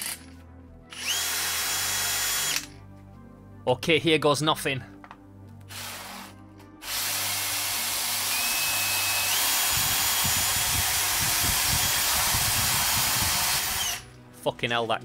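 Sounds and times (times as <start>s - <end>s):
cordless drill whine: 0.9s - 2.7s, 5.8s - 14.0s.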